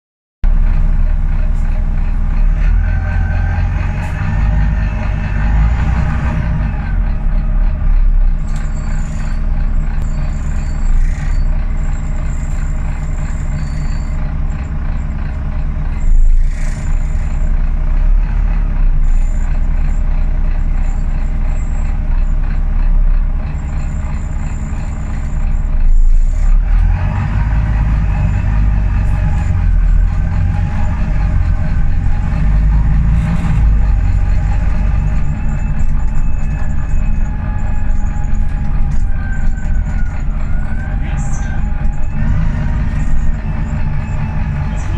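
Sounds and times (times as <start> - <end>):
bus diesel engine droning: 0.4 - 44.9
high squeaks from bus body: 8.3 - 14.8, 15.9 - 17.6, 19.0 - 22.4, 23.5 - 44.9.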